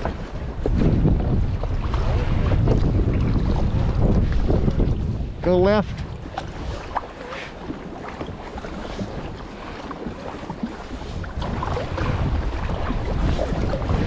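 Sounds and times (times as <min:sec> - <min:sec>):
water dripping and lapping: 0:00.0 - 0:14.0
wind buffeting microphone: 0:00.0 - 0:14.0
small paddle splashes: 0:05.9 - 0:14.0.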